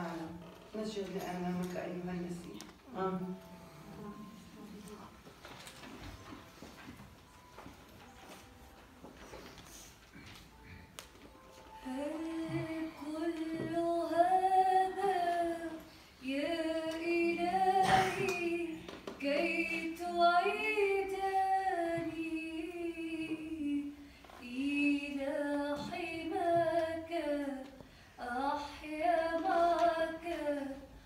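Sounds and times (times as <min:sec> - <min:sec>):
female voice singing a hymn: 0:11.8 - 0:31.0.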